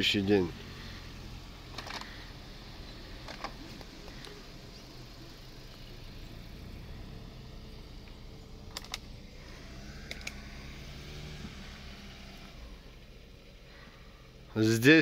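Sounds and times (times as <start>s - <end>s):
car engine idling: 0.0s - 15.0s
sharp clicks: 3.2s - 4.4s, 8.0s - 9.2s, 10.0s - 10.5s.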